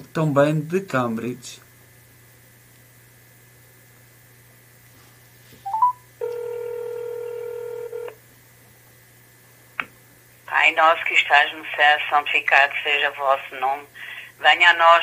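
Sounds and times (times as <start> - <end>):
rising three-step beep: 5.7 - 6.0.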